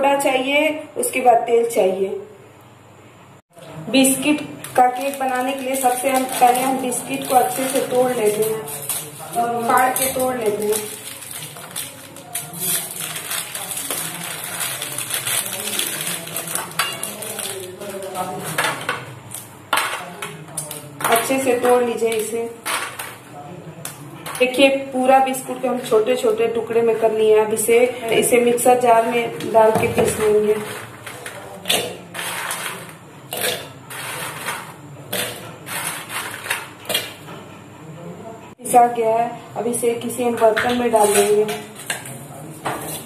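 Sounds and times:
plastic wrappers crinkling and tearing: 4.6s - 18.6s, 30.2s - 37.1s.

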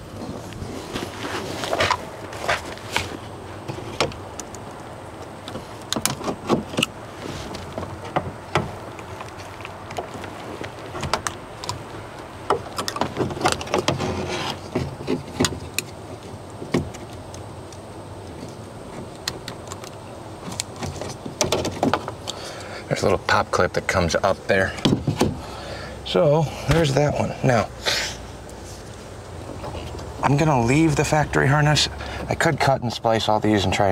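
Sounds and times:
clicks knocks and scrapes: 0.2s - 4.6s, 12.5s - 17.4s, 18.3s - 22.2s.

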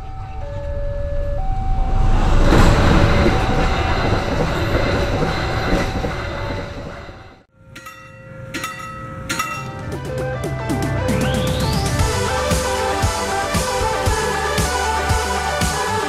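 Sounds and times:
level crossing warning alarm: 0.0s - 2.2s
train wheels rumbling on track: 1.4s - 11.1s.

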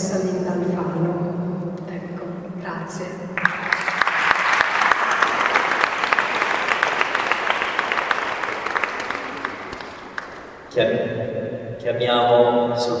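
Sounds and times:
audience applauding: 3.4s - 10.7s.

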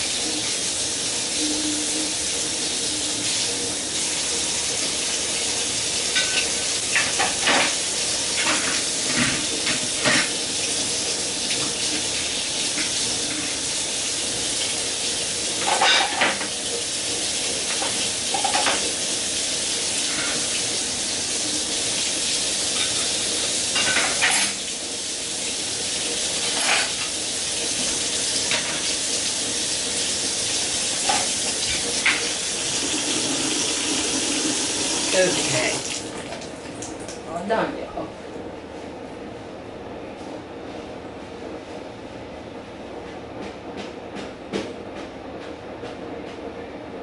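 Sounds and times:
dishes clinking: 23.8s - 24.6s
tap water running into sink: 25.3s - 37.2s.

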